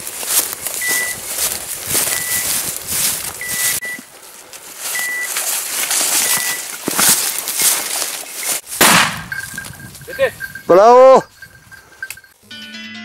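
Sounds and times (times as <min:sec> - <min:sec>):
footsteps in brush: 0:00.0 - 0:10.1
leaves and brush rustling: 0:00.0 - 0:10.6.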